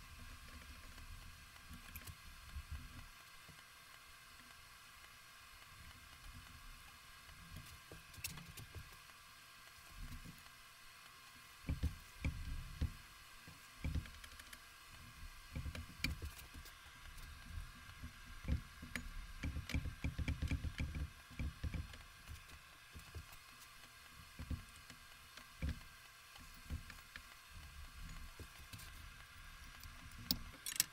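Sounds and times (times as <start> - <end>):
metal parts clinking and tapping: 29.7 - 30.9.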